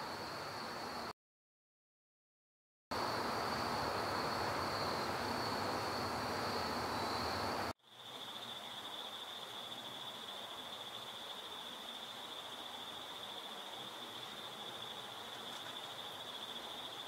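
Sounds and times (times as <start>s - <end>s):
night insects trilling: 3.0s - 17.0s
outdoor hiss: 3.0s - 17.0s.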